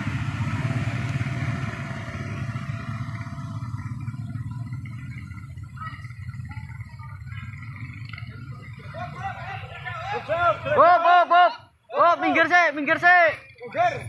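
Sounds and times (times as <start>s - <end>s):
motorcycle passing close: 0.0s - 10.8s
low engine rumble: 0.0s - 11.0s.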